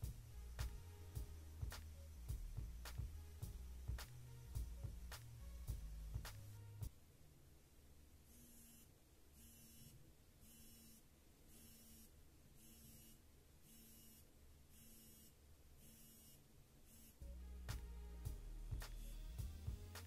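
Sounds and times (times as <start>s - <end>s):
watch vibration buzzing: 8.3s - 20.0s.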